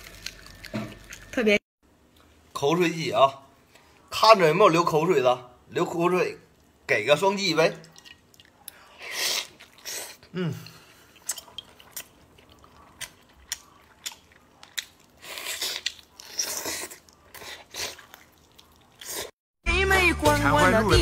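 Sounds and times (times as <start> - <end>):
wet chewing and lip smacking: 7.8 - 10.3, 11.0 - 19.3
slurping and sucking: 8.9 - 10.3, 15.2 - 19.4
person humming mm: 10.3 - 10.8.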